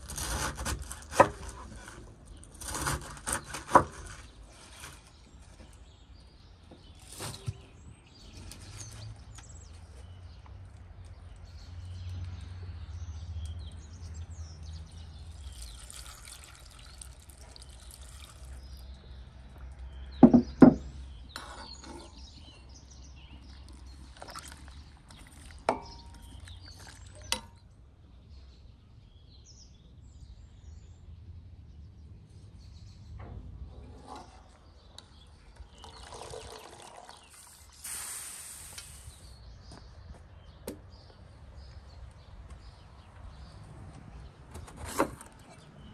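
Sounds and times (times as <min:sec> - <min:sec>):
hissing splashing liquid: 0:15.4 - 0:18.6, 0:35.8 - 0:39.3
sharp knocks: 0:20.2 - 0:20.9.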